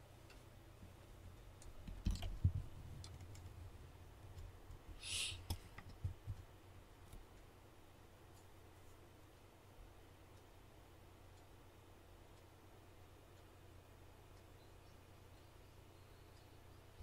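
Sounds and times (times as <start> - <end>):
short hiss: 5.0 - 5.6.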